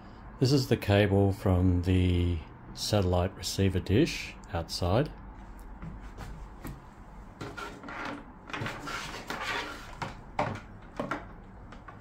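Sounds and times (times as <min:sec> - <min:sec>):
cable rustling and knocking: 0:05.8 - 0:12.0.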